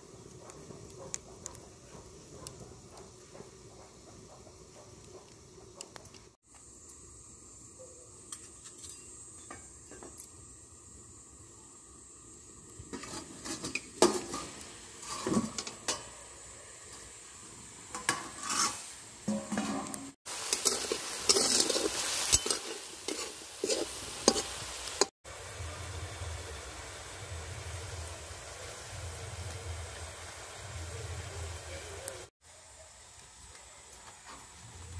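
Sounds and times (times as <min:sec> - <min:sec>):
chicken frying in hot oil: 0:10.5 - 0:34.9
metal spatula scraping in pan: 0:12.9 - 0:16.1, 0:17.9 - 0:25.1.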